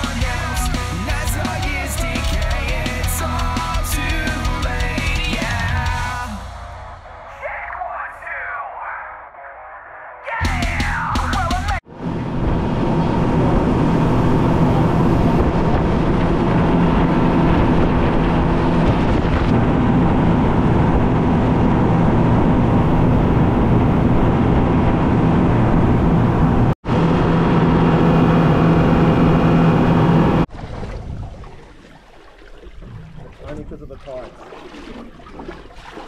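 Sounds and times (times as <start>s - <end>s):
boat engine running: 0.0s - 7.4s, 10.5s - 36.0s
water rushing past: 30.4s - 36.0s.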